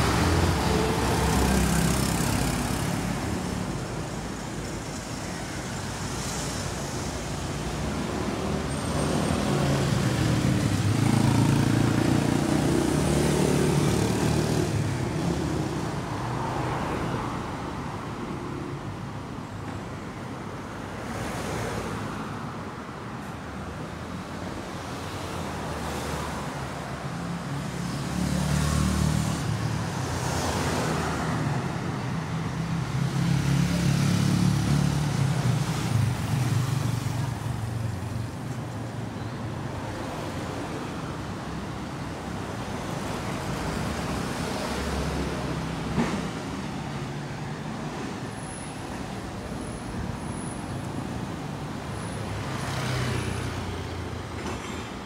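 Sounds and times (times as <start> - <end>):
cars driving past: 0.0 - 5.2, 24.9 - 55.0.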